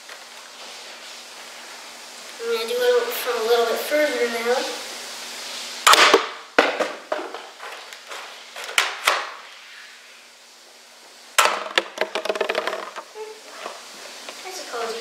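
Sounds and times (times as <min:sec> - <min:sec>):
foam dart blaster snapping: 0:05.9 - 0:06.8
plastic clicks and knocks: 0:11.4 - 0:13.1.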